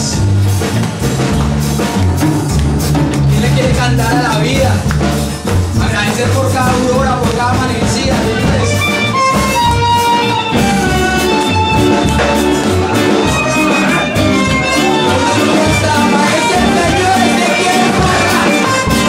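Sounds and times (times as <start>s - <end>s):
bass pulse: 0.0s - 19.0s
live band playing: 0.0s - 19.0s.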